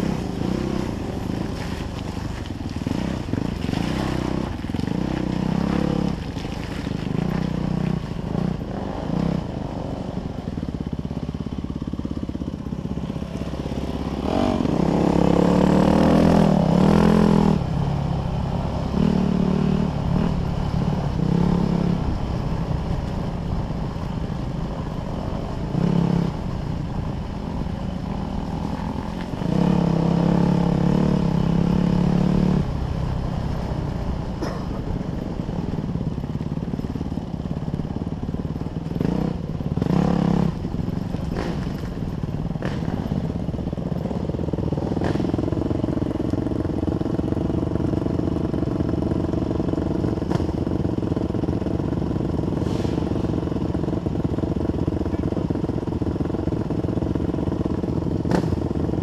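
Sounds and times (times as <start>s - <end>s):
dirt bike engine revving: 0.0s - 1.9s, 13.4s - 17.7s, 27.5s - 33.7s, 38.7s - 43.4s
bike rattling and knocking: 34.3s - 48.5s.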